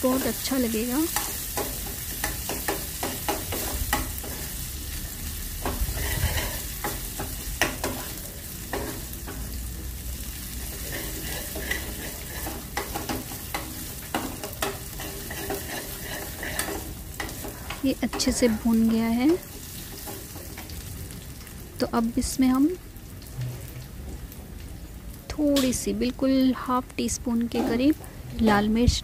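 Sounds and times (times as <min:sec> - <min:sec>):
onions sizzling in a pan: 0:00.0 - 0:29.0
metal spoon scraping pan: 0:05.6 - 0:09.0, 0:10.7 - 0:18.6.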